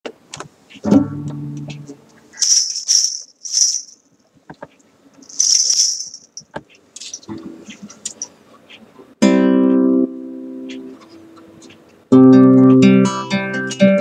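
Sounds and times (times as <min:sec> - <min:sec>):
jingle bells shaking: 0:02.4 - 0:04.0, 0:05.2 - 0:06.4.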